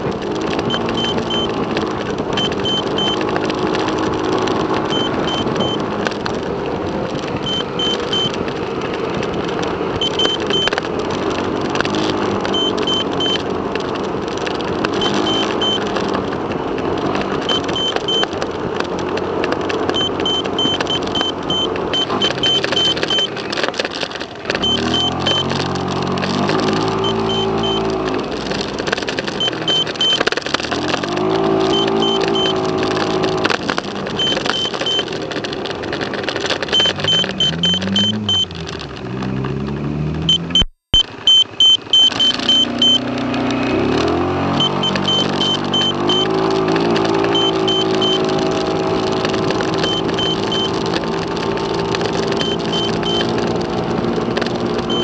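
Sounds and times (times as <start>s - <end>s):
car road and engine noise: 0.0s - 55.0s
changing pitched tones: 19.8s - 35.3s, 36.5s - 38.9s, 39.8s - 55.0s.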